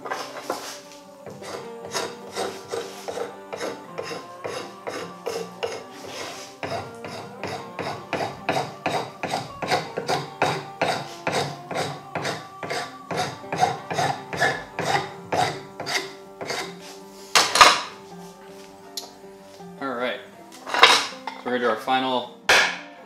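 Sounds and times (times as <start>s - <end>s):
rasp scraping wood: 0.0s - 18.0s.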